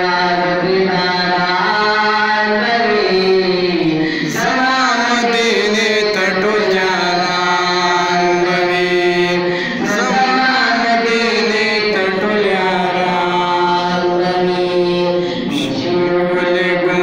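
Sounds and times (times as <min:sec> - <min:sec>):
man chanting into a microphone: 0:00.0 - 0:17.0.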